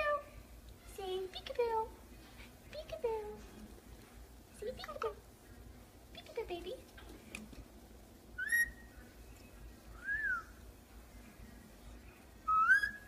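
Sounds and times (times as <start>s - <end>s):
parakeet whistling: 8.4s - 9.0s, 10.0s - 10.6s, 12.5s - 13.0s.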